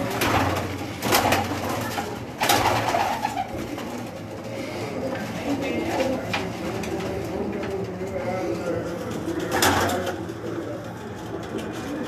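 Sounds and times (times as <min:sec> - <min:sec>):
pigeons cooing: 0:00.0 - 0:12.0.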